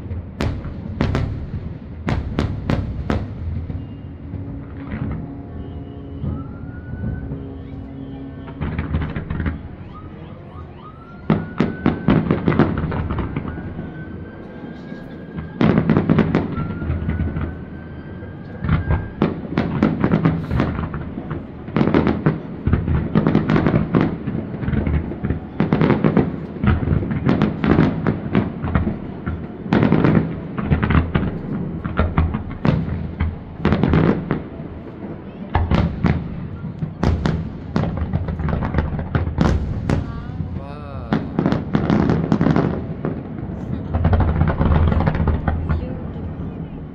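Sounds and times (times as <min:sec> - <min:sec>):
fireworks bangs and crackle: 0:00.0 - 0:46.9.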